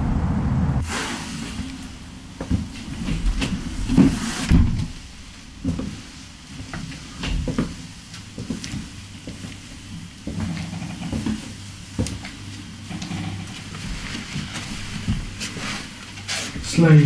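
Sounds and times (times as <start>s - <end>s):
low steady hum: 0.0s - 15.4s
footsteps: 1.4s - 12.4s
door thumping shut: 4.5s - 5.0s.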